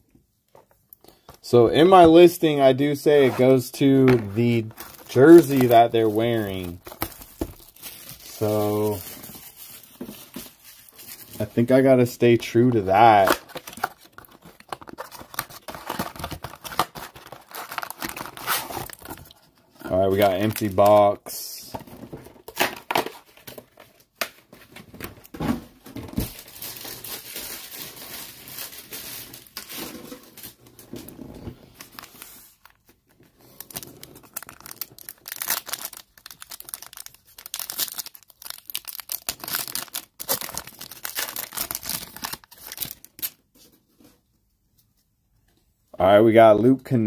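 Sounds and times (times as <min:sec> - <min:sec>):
foil wrappers crinkling and tearing: 0:04.4 - 0:11.8, 0:13.0 - 0:19.4, 0:26.2 - 0:43.4.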